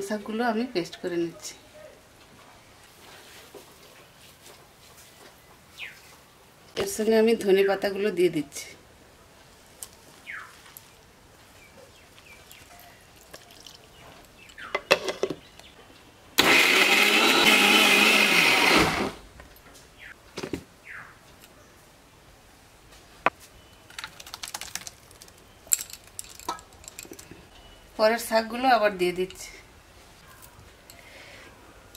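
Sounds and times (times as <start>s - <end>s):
mixer grinder grinding: 16.4s - 19.2s.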